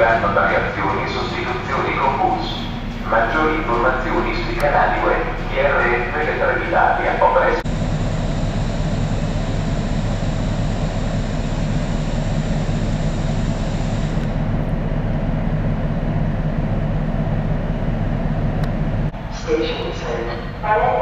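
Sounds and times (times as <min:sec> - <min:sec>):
diesel train engine droning: 0:00.0 - 0:21.0.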